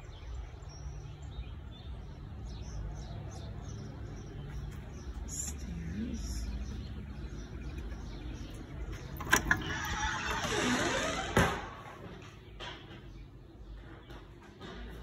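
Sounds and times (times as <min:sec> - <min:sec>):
door creaking: 0:08.6 - 0:13.1
door latch clicks: 0:09.1 - 0:10.5.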